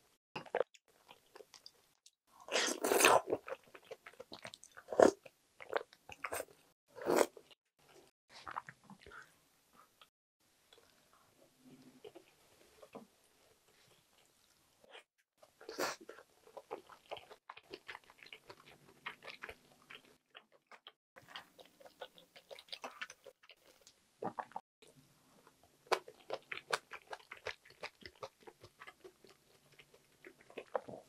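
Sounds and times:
person chewing: 15.6s - 24.6s, 25.8s - 31.0s.

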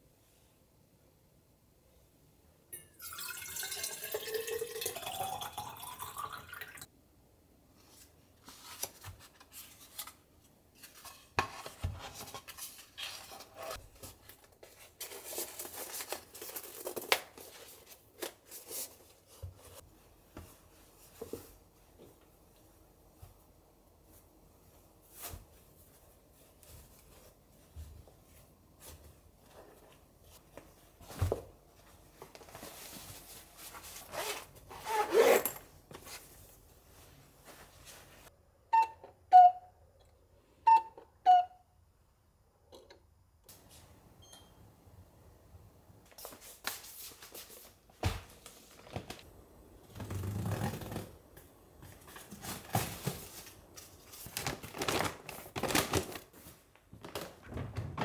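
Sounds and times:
zipper closing: 34.1s - 35.6s
plastic bag rustling: 51.8s - 57.5s.

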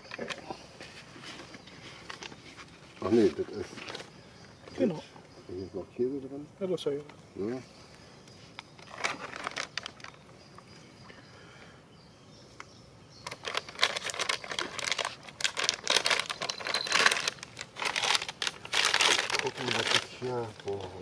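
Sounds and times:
plastic pouch crinkling: 8.8s - 10.2s, 13.2s - 21.0s.

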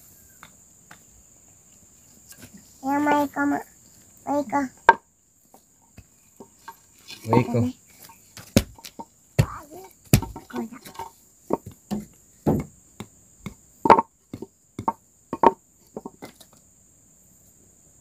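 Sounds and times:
wooden knocks and clacks: 8.4s - 16.4s.

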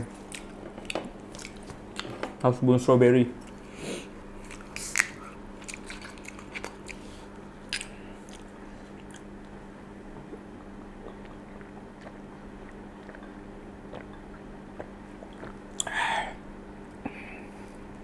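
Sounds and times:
steady low hum: 0.0s - 18.0s
person sipping and swallowing: 10.1s - 16.4s.

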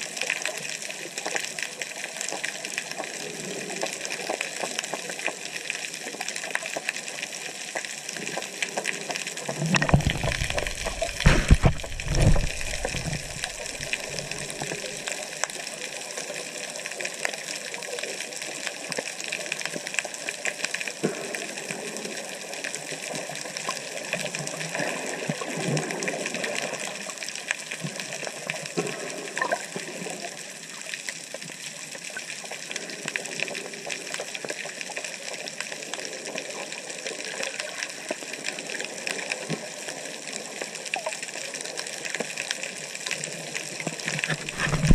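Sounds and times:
underwater hiss with crackling: 0.0s - 44.9s
low rumbling water noise: 6.2s - 17.2s, 43.2s - 44.9s.

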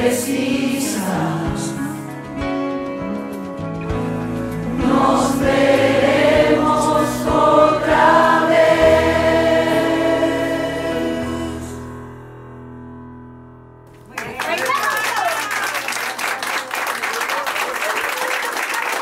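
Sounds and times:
choir singing long held notes: 0.0s - 2.0s, 4.6s - 12.0s.

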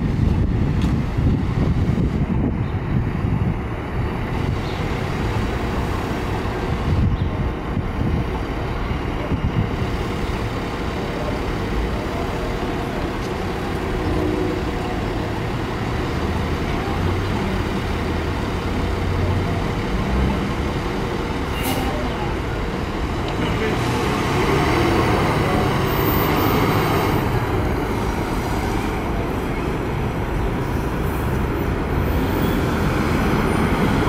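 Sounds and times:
wind buffeting microphone: 0.0s - 10.8s
road traffic noise: 0.0s - 34.0s.

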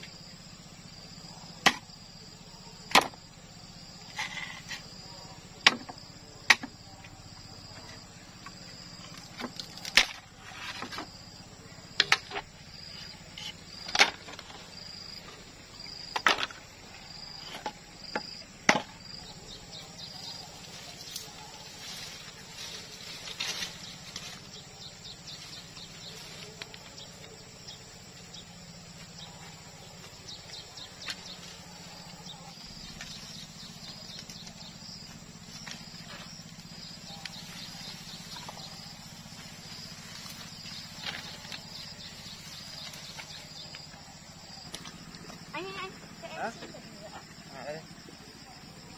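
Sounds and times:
insects chirping: 0.0s - 48.9s
bamboo being struck: 1.6s - 1.9s, 2.9s - 3.2s, 5.6s - 6.8s, 9.3s - 10.3s, 13.8s - 14.5s, 17.6s - 19.0s.

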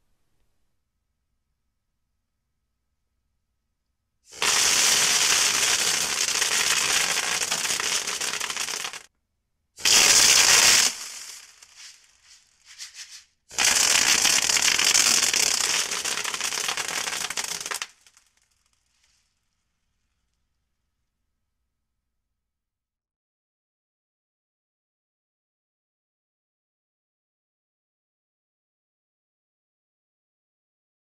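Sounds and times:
air gun bursts with rattling pellets: 4.3s - 9.1s, 9.8s - 18.5s.

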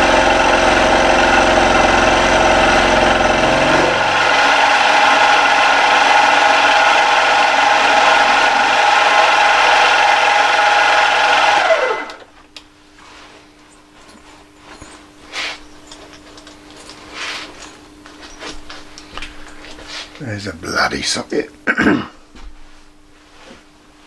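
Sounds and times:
milling spindle whine: 0.0s - 12.3s.

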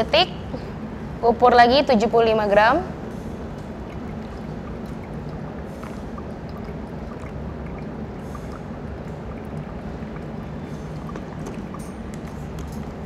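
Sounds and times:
hot water pouring onto coffee grounds: 3.3s - 13.0s.

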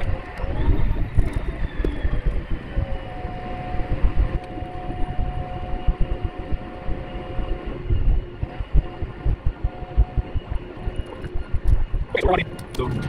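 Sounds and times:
steady whine: 0.0s - 13.0s
vehicle engine rumbling: 0.0s - 13.0s.

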